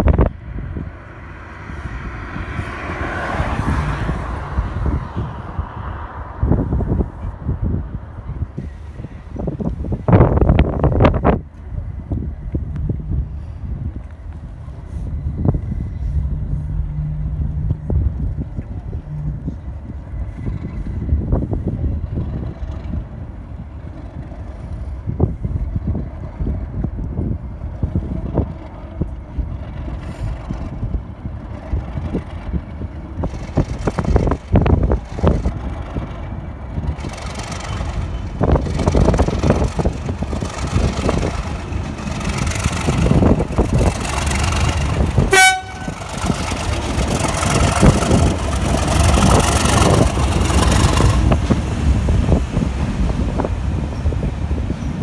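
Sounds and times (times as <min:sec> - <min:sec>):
coaches running over rails: 0:00.0 - 0:55.0
diesel locomotive engines: 0:00.0 - 0:55.0
locomotive horn toot: 0:45.2 - 0:46.6.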